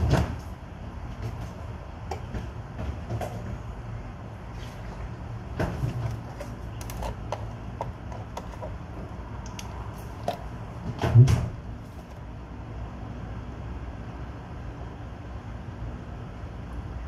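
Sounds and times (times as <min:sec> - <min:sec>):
milk carton being handled: 0:04.6 - 0:09.1, 0:11.8 - 0:12.3
plastic screw cap twisting open: 0:06.0 - 0:08.8.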